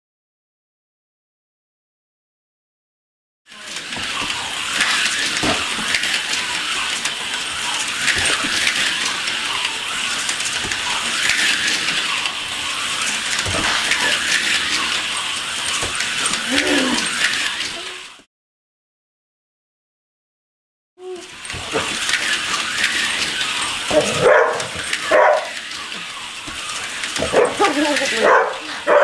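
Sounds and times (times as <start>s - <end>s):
slot car motors whirring: 3.5s - 18.3s, 21.0s - 29.0s
dog whine: 16.3s - 18.1s, 21.0s - 22.0s, 23.9s - 25.6s.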